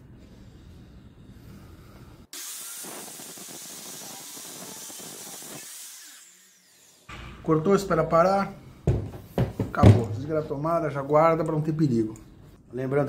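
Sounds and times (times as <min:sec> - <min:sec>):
saw disc grinding through steel rod: 0:02.4 - 0:07.2.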